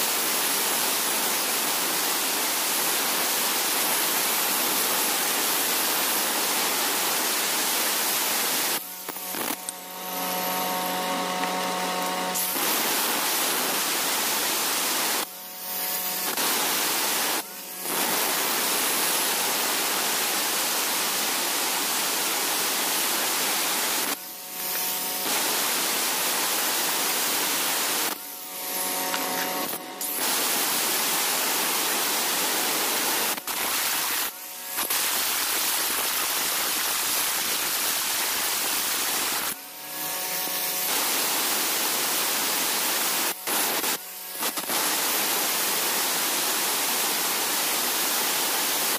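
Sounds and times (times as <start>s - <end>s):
grinder motor whine: 8.8s - 13.9s
angle grinder grinding stone: 9.0s - 12.6s.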